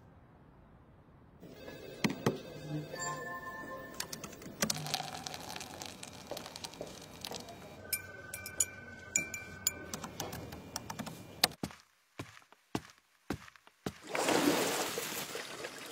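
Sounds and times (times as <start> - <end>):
steady high tone: 1.4 - 4.4, 6.4 - 10.8
glass clinks: 7.9 - 9.9
keyboard keystrokes: 9.7 - 11.6.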